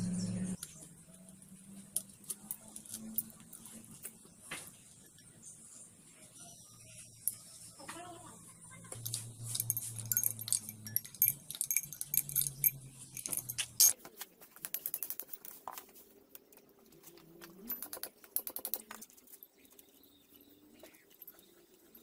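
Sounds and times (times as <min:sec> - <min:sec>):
low hum: 0:00.0 - 0:00.6
tools and metal parts clinking: 0:01.8 - 0:04.2, 0:08.9 - 0:22.0.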